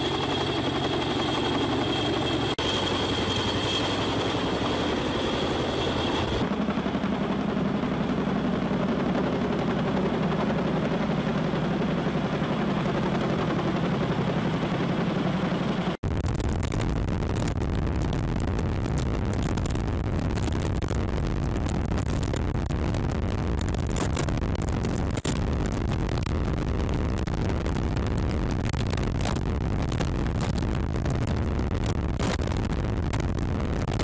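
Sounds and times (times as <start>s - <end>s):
high whine: 0.0s - 8.5s
helicopter rotor beat: 0.0s - 16.0s.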